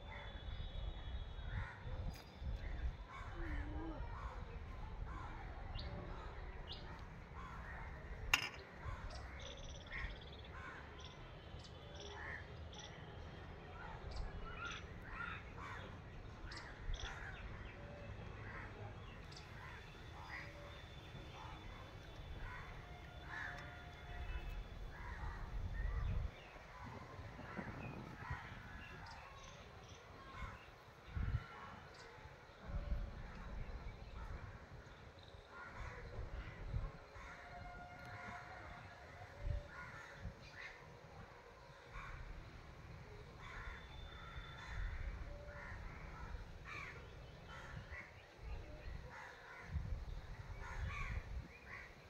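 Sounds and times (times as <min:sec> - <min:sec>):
crows cawing: 0:22.4 - 0:24.3, 0:43.4 - 0:48.1.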